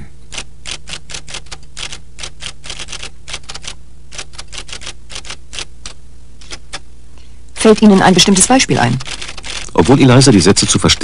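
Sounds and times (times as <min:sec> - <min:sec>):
steady low hum: 0:00.0 - 0:11.0
typewriter terminal clicking: 0:00.3 - 0:06.8, 0:08.9 - 0:09.9.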